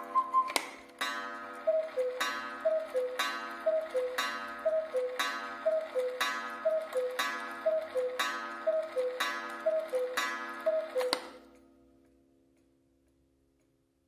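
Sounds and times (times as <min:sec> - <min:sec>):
two-note cuckoo call: 0:00.0 - 0:00.6, 0:01.6 - 0:11.4.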